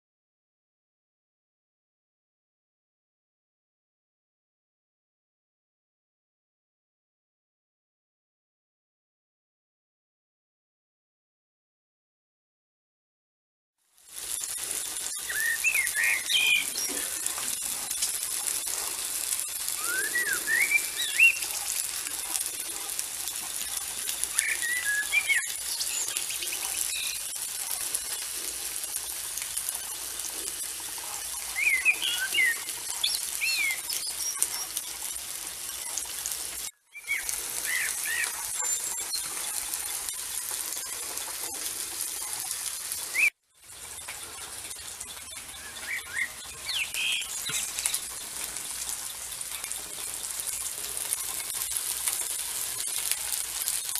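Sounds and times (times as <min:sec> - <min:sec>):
steady high hiss: 0:14.0 - 0:53.9
songbirds chirping: 0:14.2 - 0:36.3, 0:36.9 - 0:41.2, 0:42.7 - 0:51.6.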